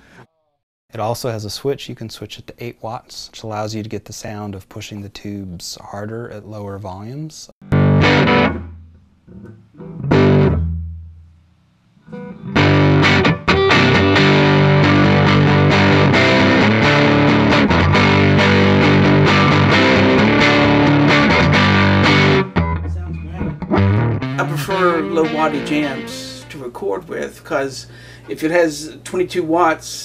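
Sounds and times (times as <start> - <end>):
electric guitar chords: 7.6 - 11.2, 12.0 - 26.7.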